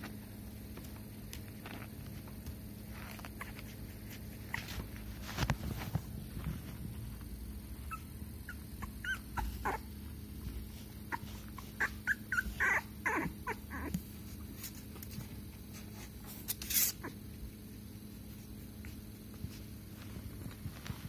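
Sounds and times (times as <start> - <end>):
puppy whimpering: 7.7 - 10.1, 11.0 - 14.0.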